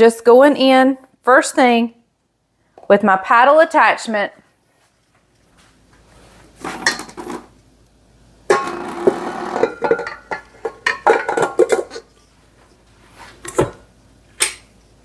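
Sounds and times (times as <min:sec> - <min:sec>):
clattering in steel mixer bowl: 0:08.5 - 0:12.1.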